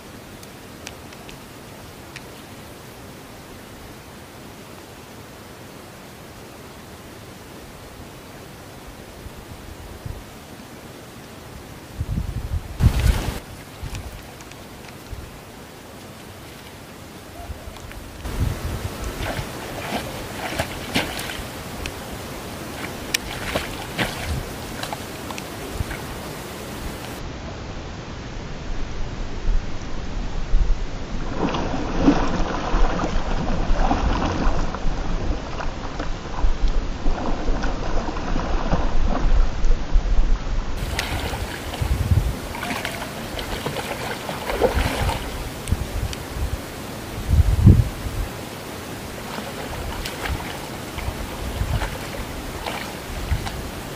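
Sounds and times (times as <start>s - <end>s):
wind buffeting microphone: 11.9s - 14.2s, 17.4s - 27.2s, 28.9s - 48.4s, 49.0s - 53.9s
water wash: 12.7s - 27.3s, 31.1s - 39.7s, 40.8s - 53.9s
fish splashing: 18.3s - 27.2s, 40.8s - 45.8s, 48.3s - 53.9s.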